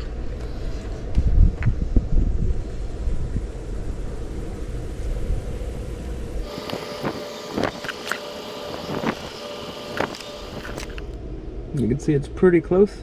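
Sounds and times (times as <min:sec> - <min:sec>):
faint steady hum: 0:00.0 - 0:13.0
wind buffeting microphone: 0:00.9 - 0:07.9.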